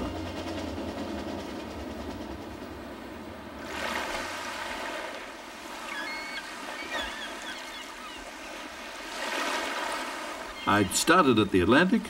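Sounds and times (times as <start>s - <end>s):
waves washing onto sand: 3.5s - 12.0s
bird chirps: 5.8s - 8.3s.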